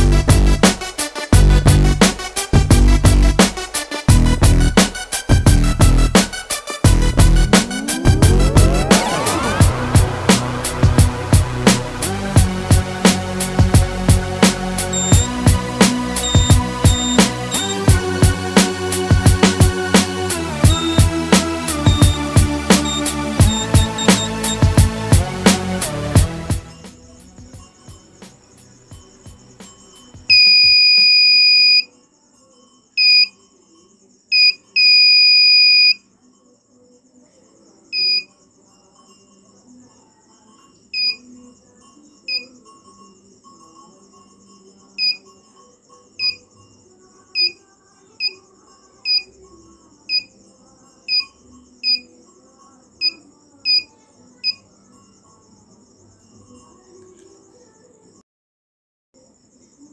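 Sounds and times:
piezo buzzer beeping: 14.9 - 18.0, 20.6 - 25.0, 30.3 - 31.9, 33.0 - 33.3, 34.4 - 36.0, 38.0 - 38.3, 41.0 - 41.2, 45.0 - 45.2, 47.4 - 47.6.

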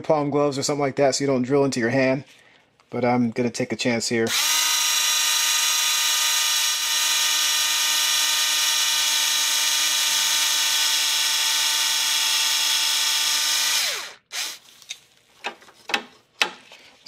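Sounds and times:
cordless screwdriver motor whine: 4.3 - 14.6.

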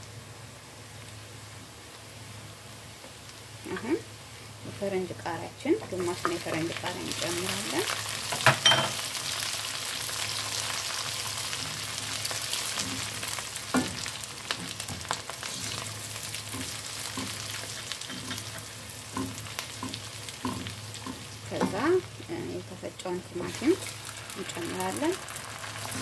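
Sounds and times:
vegetables sizzling in oil: 0.0 - 26.0
spatula scraping and tapping pan: 11.6 - 21.9.

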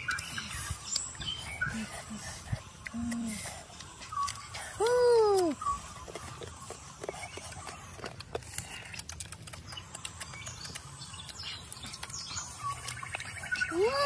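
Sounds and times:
crab shells cracking: 7.6 - 13.1.

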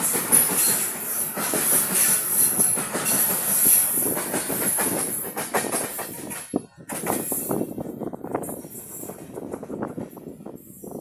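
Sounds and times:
wheels clacking over rail joints: 0.0 - 7.7
steel wheels hissing on rail: 0.0 - 11.0.

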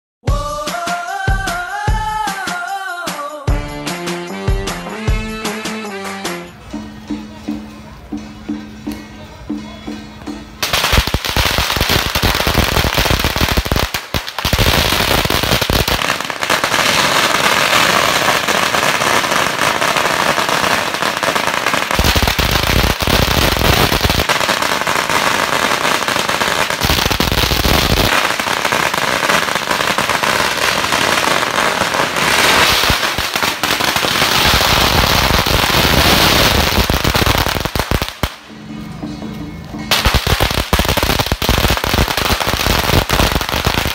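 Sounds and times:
firecrackers crackling: 10.6 - 38.6, 39.8 - 43.9.

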